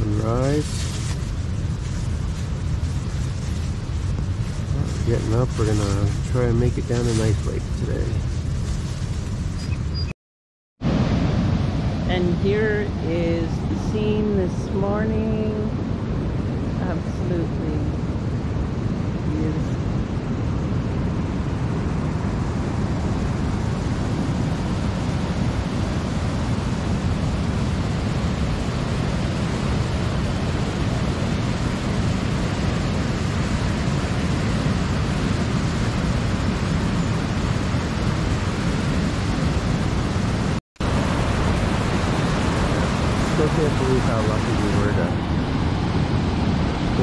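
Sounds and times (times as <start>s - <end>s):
waterfall and rapids roaring: 10.8s - 47.0s.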